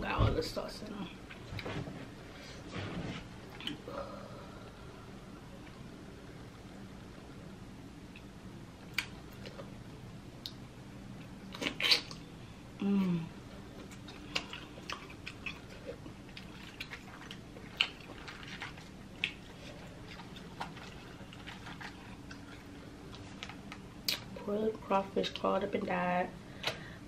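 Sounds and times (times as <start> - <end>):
sucking and mouth sounds: 11.5 - 12.2.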